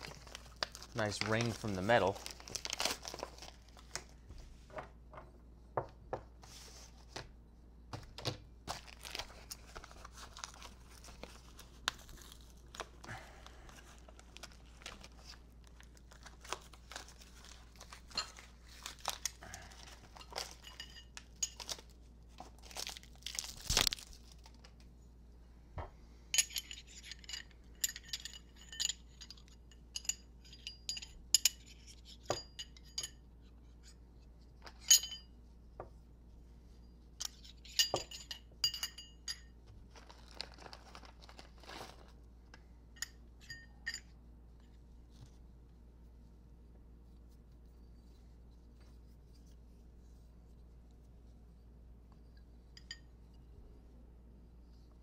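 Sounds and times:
plastic packaging crinkling and tearing: 0.0 - 4.0, 8.7 - 20.6, 21.6 - 24.8, 39.8 - 42.2
metal parts knocking and clinking: 26.4 - 33.1, 37.2 - 39.5.

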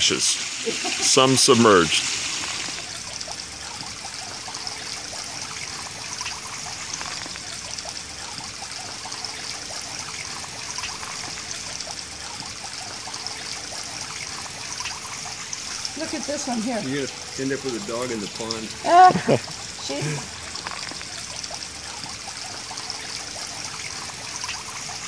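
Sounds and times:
stream water trickling: 0.0 - 25.0.

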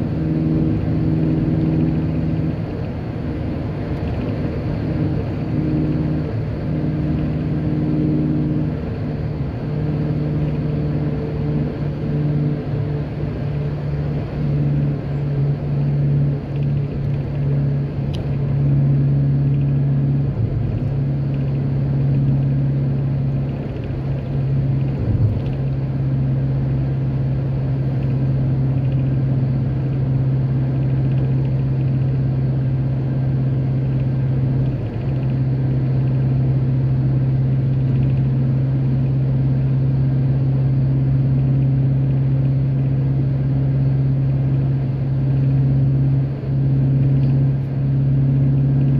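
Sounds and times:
car engine and road noise: 0.0 - 48.9.

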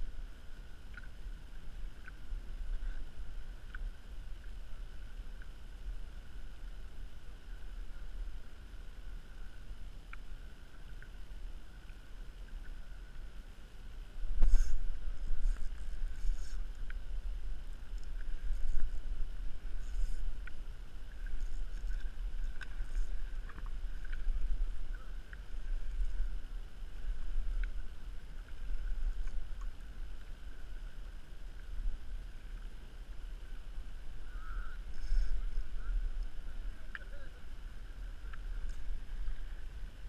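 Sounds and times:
water lapping against kayak hull: 0.2 - 40.0
faint clicks: 0.8 - 3.0, 3.6 - 4.5, 9.4 - 11.2, 27.0 - 31.0.

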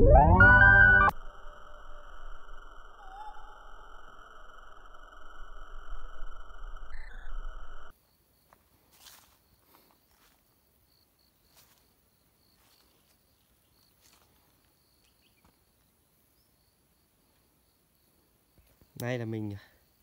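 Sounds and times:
high electronic drone: 0.0 - 7.9
rising synth sweep: 0.0 - 7.9.

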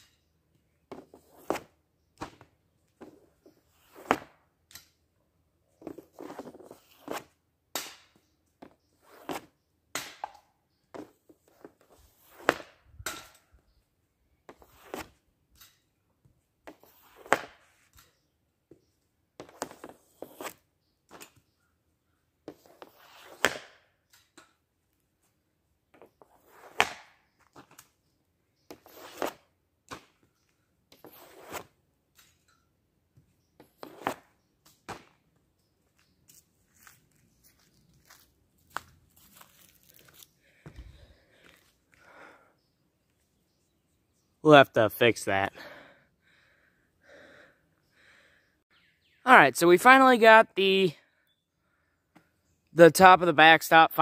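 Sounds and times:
stick blade scraping pad: 5.8 - 7.4, 9.0 - 9.6, 14.5 - 15.2, 19.4 - 20.7, 22.5 - 23.6, 26.0 - 27.1, 28.7 - 29.4, 30.9 - 31.8, 33.6 - 34.4
hockey stick cracking puck: 22.6 - 23.8, 26.6 - 27.2.

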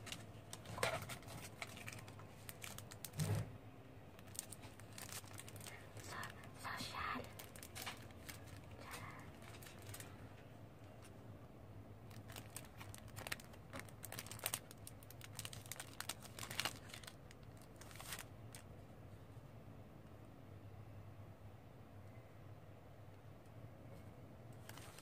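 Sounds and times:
plastic film crinkling: 0.0 - 3.5, 4.1 - 11.1, 12.0 - 18.7, 24.6 - 25.0.

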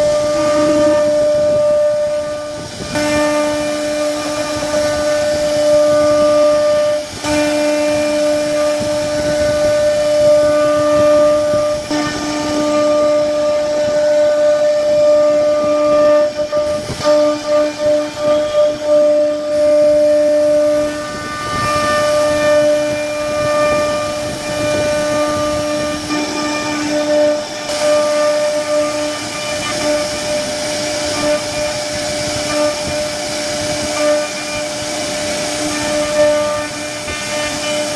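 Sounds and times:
router spindle whining: 0.0 - 37.9
bit carving wood: 20.9 - 31.7.

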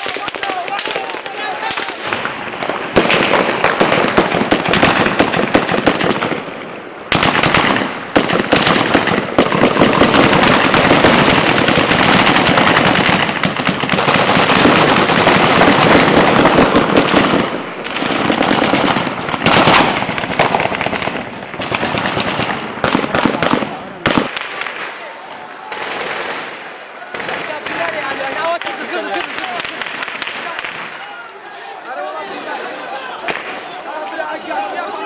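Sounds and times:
automatic weapons fire: 0.0 - 6.5, 7.1 - 24.9, 25.7 - 28.6.

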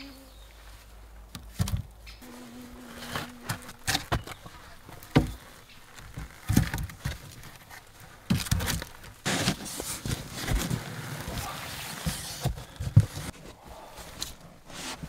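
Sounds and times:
wooden poles knocking: 3.5 - 7.5.

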